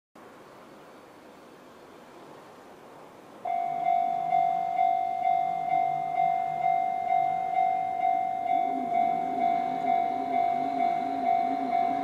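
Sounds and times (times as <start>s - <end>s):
level crossing warning bell: 3.4s - 12.0s.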